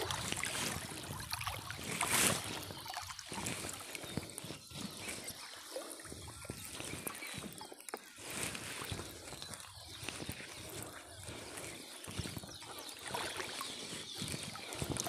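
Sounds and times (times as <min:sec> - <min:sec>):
water sloshing in a stream: 0:00.0 - 0:15.0.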